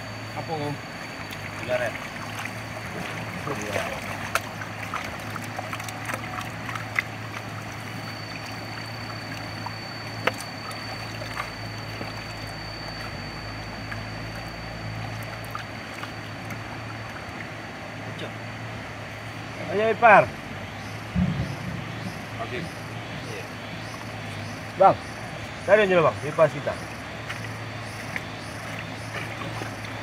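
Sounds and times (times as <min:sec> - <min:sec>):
low engine hum: 0:00.0 - 0:30.0
water sloshing and trickling: 0:00.0 - 0:30.0.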